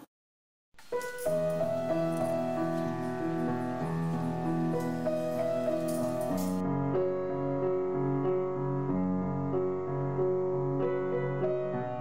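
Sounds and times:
keyboard music: 1.0s - 7.8s.

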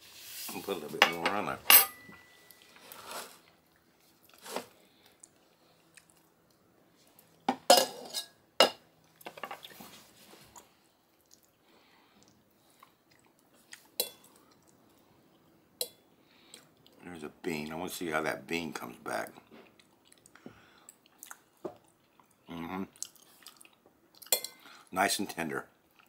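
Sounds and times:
utensils clinking on saucepan: 1.0s - 2.5s, 7.5s - 8.8s.

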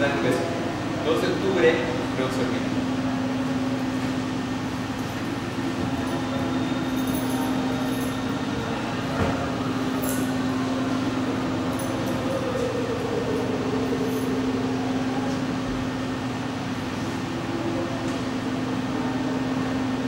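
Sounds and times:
mechanical hum: 0.0s - 20.0s.

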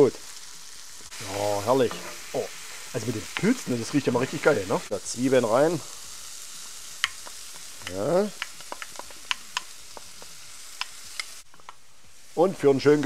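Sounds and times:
vegetables sizzling in a pan: 0.0s - 13.0s
spatula clicking against iron pan: 7.0s - 10.1s, 10.8s - 11.8s.

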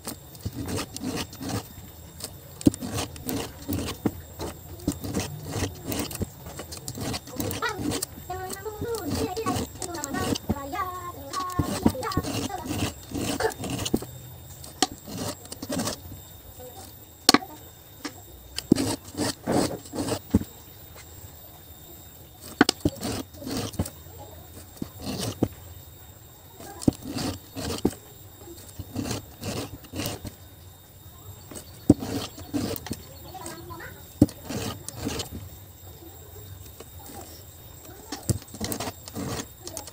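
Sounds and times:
file scraping chainsaw chain: 0.0s - 20.5s, 22.4s - 25.6s, 26.6s - 30.4s, 31.4s - 35.6s, 36.6s - 39.9s.

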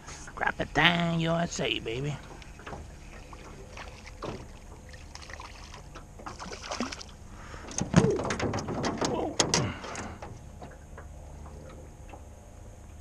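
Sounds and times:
light clicks and knocks: 2.2s - 4.9s, 7.6s - 12.3s
fish splashing and thrashing: 2.2s - 10.8s
loud thump and splash: 3.7s - 7.1s.

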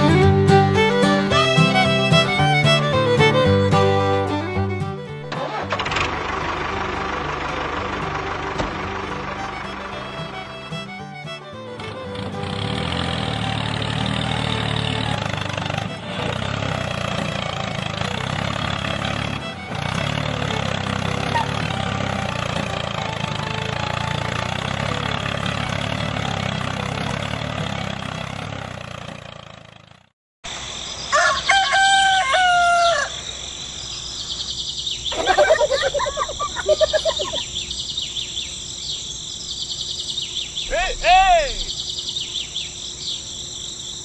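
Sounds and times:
engine running: 0.0s - 30.8s, 33.6s - 43.7s
rooster crowing: 31.1s - 33.4s
insect chirring: 33.1s - 40.7s, 41.6s - 44.0s.

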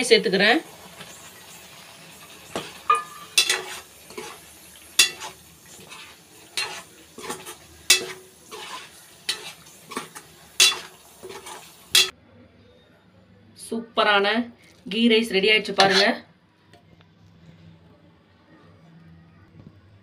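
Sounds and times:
metal ladle scraping steel pan: 2.5s - 12.1s, 15.8s - 16.2s.

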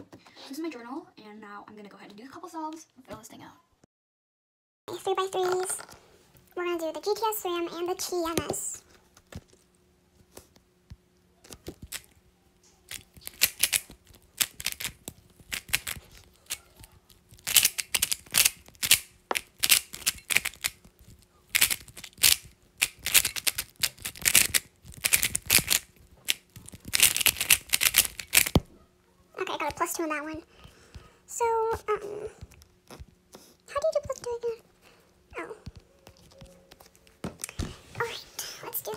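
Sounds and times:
puzzle cube clicking: 12.9s - 16.6s, 17.3s - 20.8s, 21.5s - 28.6s.

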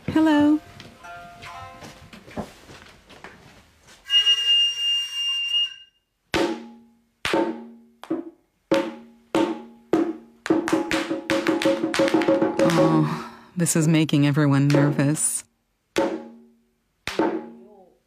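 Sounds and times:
drum strikes: 6.3s - 13.3s, 14.5s - 15.3s, 16.0s - 17.8s.

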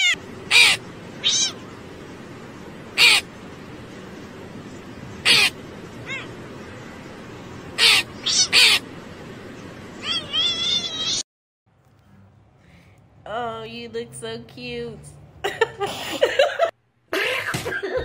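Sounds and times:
crow cawing: 3.0s - 3.2s, 5.2s - 6.3s, 7.8s - 8.8s.

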